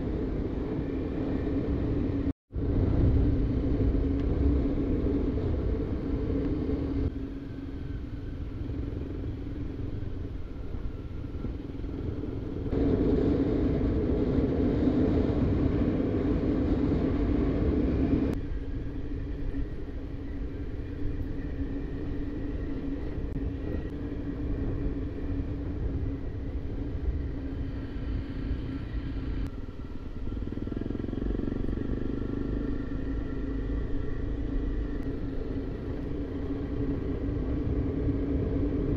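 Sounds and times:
vehicle engine rumbling: 0.0 - 38.9.

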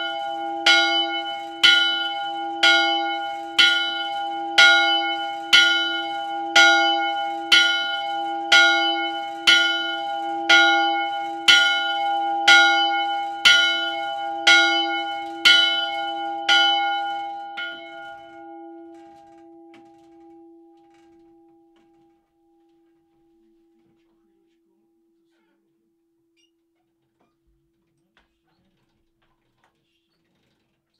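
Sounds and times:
church bell pealing: 0.0 - 24.4.

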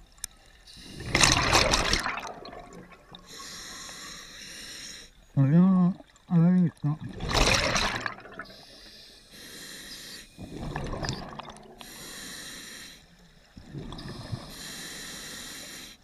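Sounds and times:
exhaled bubbles rushing: 0.8 - 3.4, 7.1 - 8.6, 10.4 - 11.8, 13.6 - 14.5.

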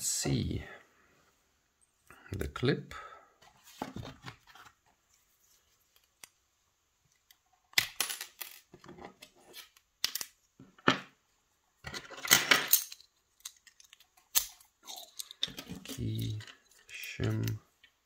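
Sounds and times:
metal lock parts clinking: 9.6 - 10.4, 11.9 - 18.0.

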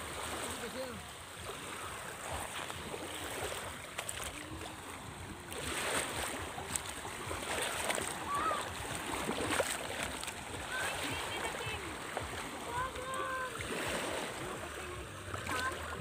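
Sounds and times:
sea water sloshing: 0.0 - 16.0
faint voices: 10.6 - 16.0.

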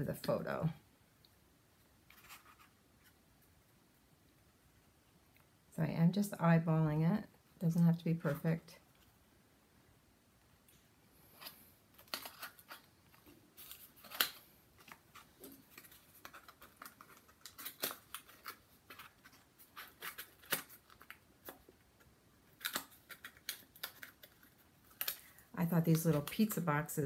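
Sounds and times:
papery rustling: 11.4 - 26.6.

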